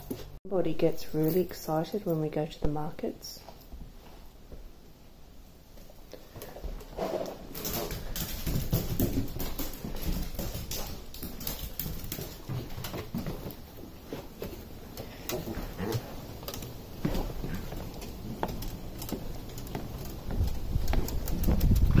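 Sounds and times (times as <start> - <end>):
footsteps on tiled floor: 5.7 - 22.0
dog claws clicking on tiles: 6.2 - 13.7, 14.4 - 22.0.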